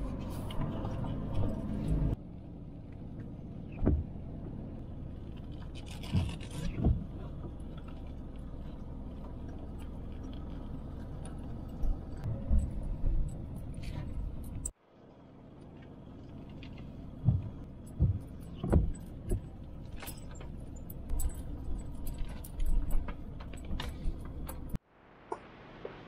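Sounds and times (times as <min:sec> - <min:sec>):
tyre and engine rumble: 0:00.0 - 0:26.0
car knocks and rattles over bumps: 0:03.1 - 0:14.8, 0:15.8 - 0:24.8.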